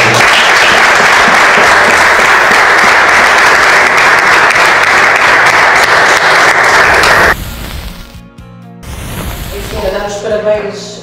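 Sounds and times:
group of people clapping: 0:00.0 - 0:07.4.

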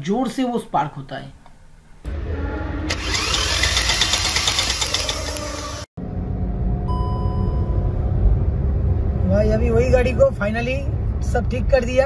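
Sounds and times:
engine running: 0:02.1 - 0:09.3
engine cranking: 0:02.9 - 0:05.9.

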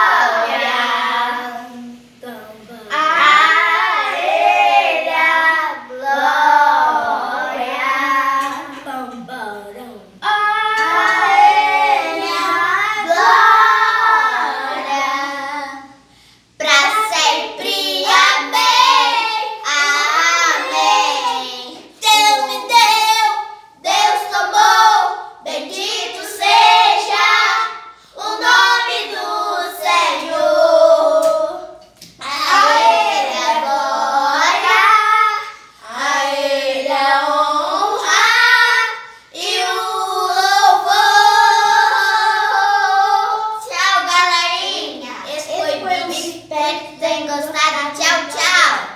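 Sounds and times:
child singing unaccompanied: 0:00.0 - 0:48.9.

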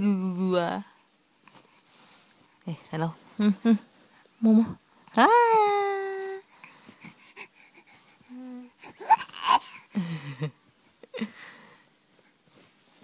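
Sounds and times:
baby breathing and cooing: 0:06.2 - 0:10.0.

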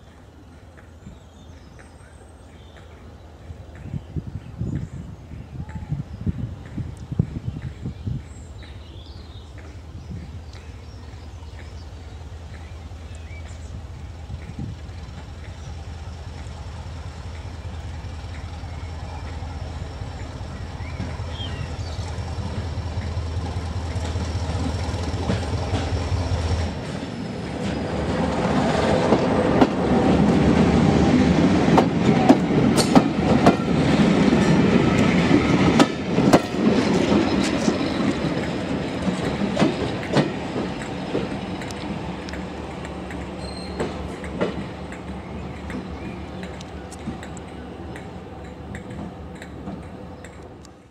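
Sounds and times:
train wheels clicking over rail joints: 0:00.1 - 0:50.9
diesel engine low thrum: 0:09.7 - 0:28.5.

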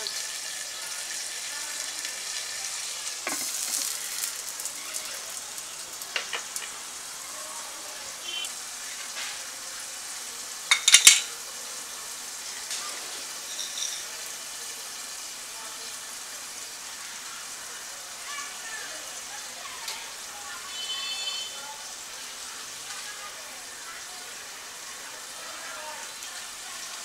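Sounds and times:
wood fire crackling: 0:00.0 - 0:09.5
curry sizzling in a pot: 0:00.0 - 0:27.0.

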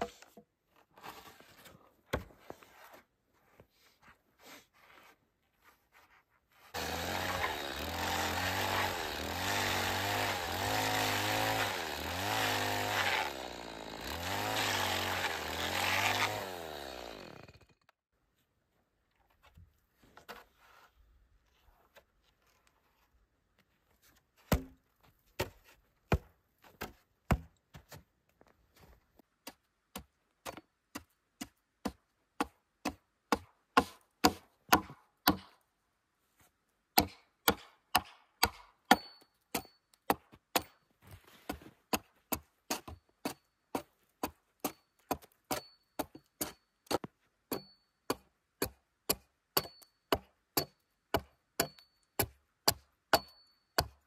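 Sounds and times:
hatchet chopping wood: 0:06.8 - 0:17.9, 0:24.5 - 0:24.8, 0:25.4 - 0:27.6, 0:29.4 - 0:35.6, 0:37.0 - 0:40.8, 0:41.9 - 0:54.0.

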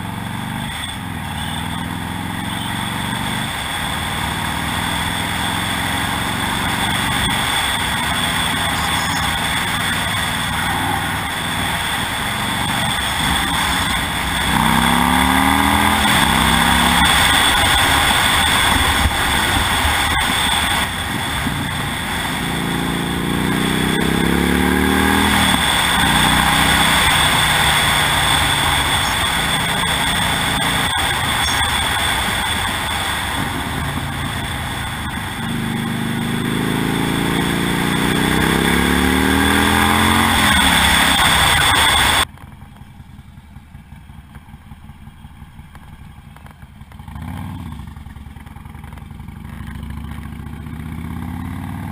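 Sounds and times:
motorcycle engine accelerating: 0:00.0 - 0:51.9
wind noise: 0:11.3 - 0:23.5.

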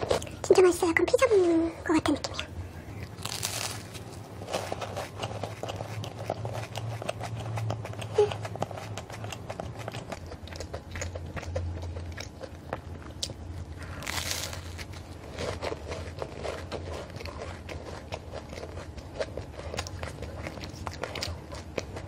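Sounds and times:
chewing crisp pastry: 0:00.0 - 0:01.3, 0:02.0 - 0:22.0
crunchy bite into pastry: 0:03.0 - 0:05.2, 0:10.2 - 0:21.8.

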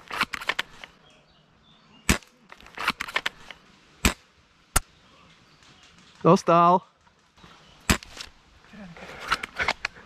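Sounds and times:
airsoft gun shots: 0:02.1 - 0:03.2.

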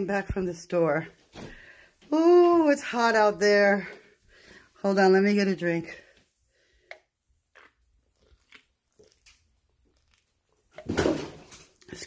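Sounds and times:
person gulping soda: 0:07.4 - 0:11.1.

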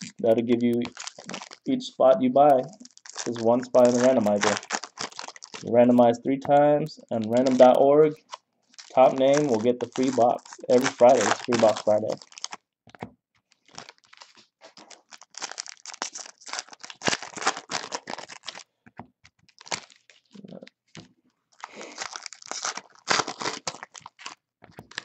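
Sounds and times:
foil wrappers tearing and crinkling: 0:00.0 - 0:01.7, 0:02.6 - 0:05.7, 0:07.2 - 0:12.6, 0:13.5 - 0:18.7, 0:19.5 - 0:20.4, 0:21.5 - 0:25.0.

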